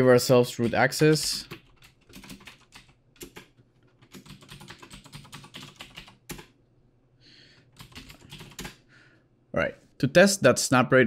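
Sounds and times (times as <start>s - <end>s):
typing on computer keyboard: 0.6s - 6.5s, 7.7s - 8.8s.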